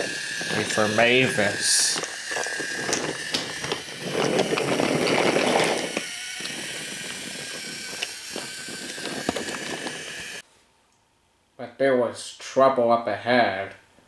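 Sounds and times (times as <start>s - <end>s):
toy train rolling on wooden track: 0.0s - 10.4s.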